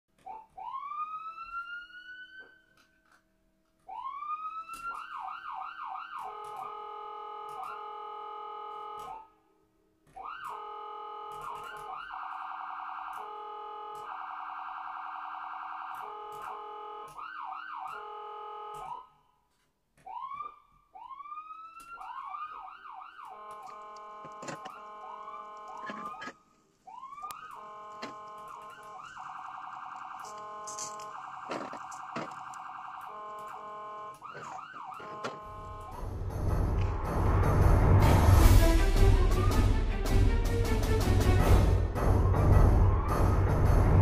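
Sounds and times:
electronic siren whoops: 0.3 - 2.7, 3.9 - 9.3, 10.2 - 19.2, 20.1 - 26.3, 26.9 - 36.0.

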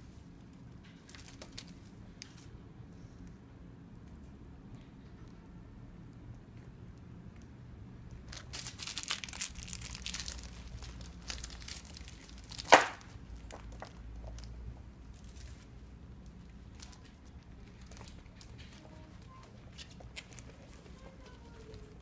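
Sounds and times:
plastic wrapping crinkling: 8.3 - 13.8, 15.1 - 22.0.

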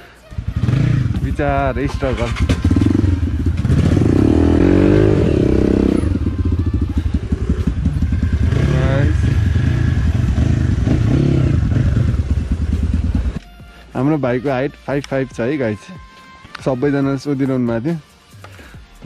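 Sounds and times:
low engine rumble: 0.3 - 13.4
motorcycle engine revving: 0.3 - 13.4.

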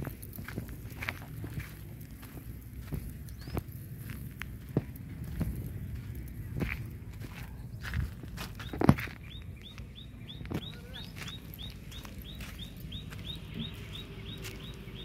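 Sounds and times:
bird chirping: 2.8 - 4.2, 7.3 - 15.0.

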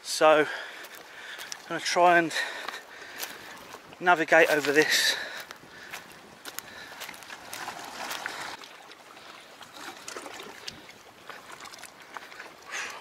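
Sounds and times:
footsteps on loose stones: 0.5 - 8.6
waves lapping against rocks: 0.9 - 13.0.

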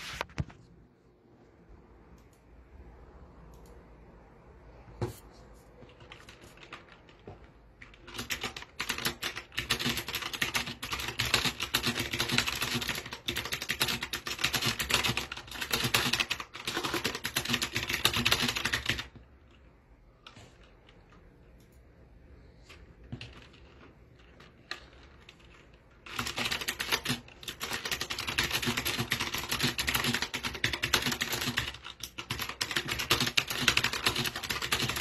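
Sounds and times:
mechanical keyboard keys clicking: 5.8 - 19.2, 23.0 - 35.0.

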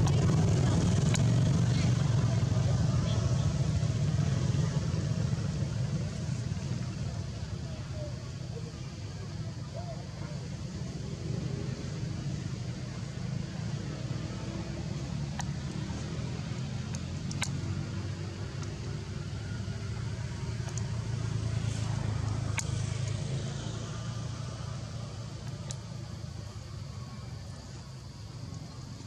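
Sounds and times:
faint sharp clicks: 15.3 - 16.0, 16.8 - 17.8, 18.5 - 18.9, 20.5 - 21.0, 22.2 - 23.2, 25.4 - 25.9.

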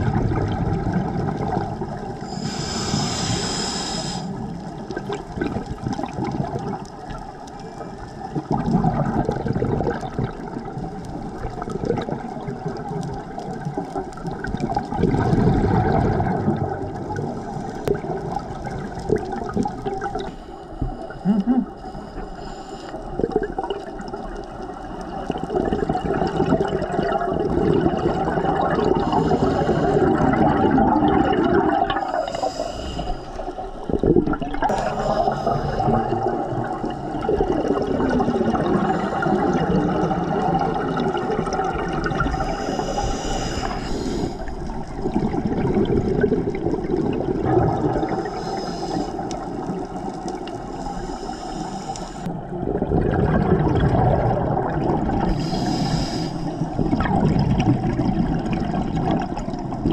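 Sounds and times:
rush of bubbles: 0.0 - 20.5, 23.0 - 51.2, 52.2 - 59.9
regulator inhalation hiss: 2.2 - 4.6, 20.2 - 23.1, 29.0 - 30.0, 32.0 - 33.6, 34.7 - 36.0, 42.2 - 44.5, 48.2 - 49.4, 50.6 - 52.3, 55.2 - 56.7.

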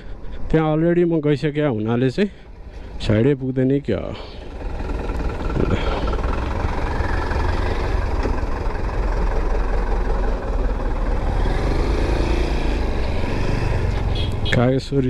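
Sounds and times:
motorcycle engine running: 4.3 - 14.6.

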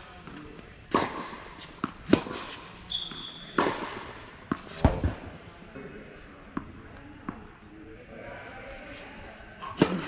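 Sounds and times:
tennis ball hit by rackets: 0.2 - 2.6, 3.5 - 5.3
sneaker squeak on court: 2.8 - 3.9.

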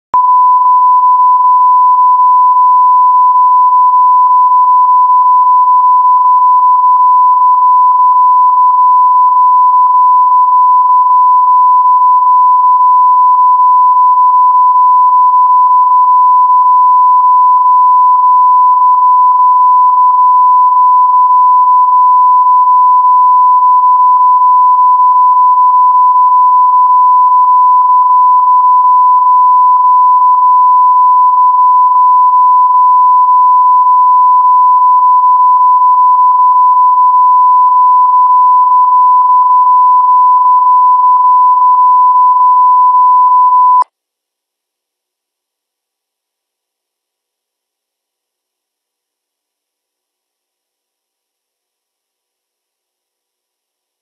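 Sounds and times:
loud steady line-up tone beep: 0.2 - 43.8.

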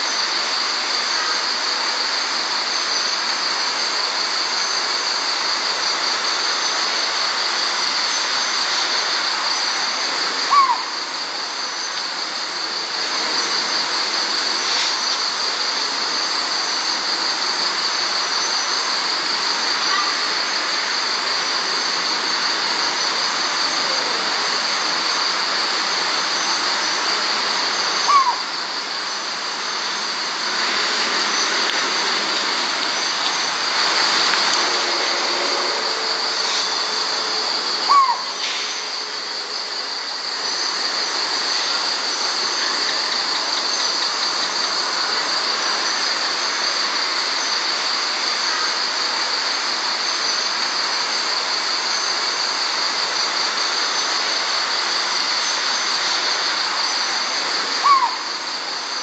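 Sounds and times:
high ringing hiss: 0.0 - 59.0
insects chorus: 0.0 - 59.0
owl short downward call: 10.5 - 11.0, 28.1 - 28.5, 37.9 - 38.3, 57.8 - 58.3.

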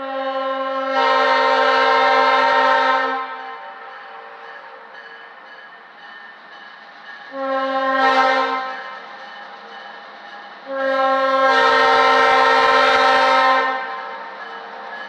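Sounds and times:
locomotive air horn blasts: 0.0 - 3.9, 7.3 - 8.8, 10.7 - 14.2.

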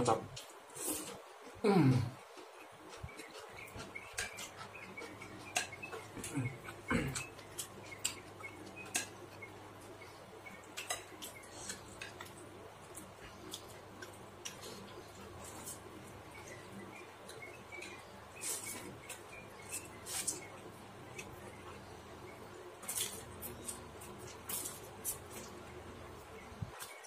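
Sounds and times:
chewing and mouth clicks: 2.3 - 9.5.

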